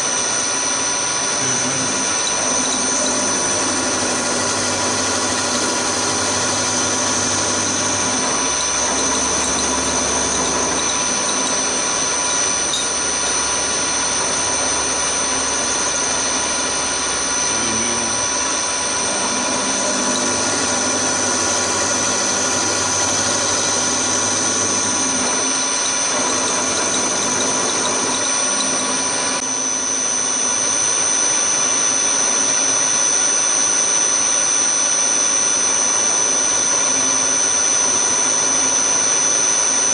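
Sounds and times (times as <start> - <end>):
milling machine cutting metal: 0.0 - 39.9.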